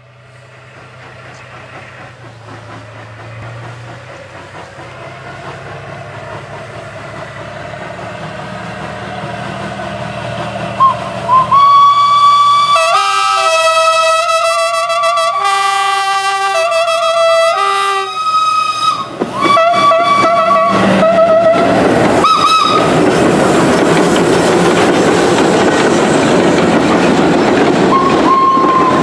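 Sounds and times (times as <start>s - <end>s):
locomotives running hum: 0.0s - 18.0s
train whistle toots: 10.8s - 23.0s, 27.9s - 29.0s.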